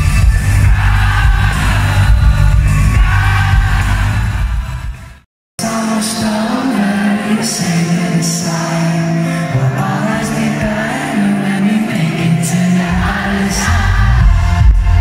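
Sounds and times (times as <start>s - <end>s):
pop band playing: 0.0s - 15.0s
person singing: 5.6s - 15.0s.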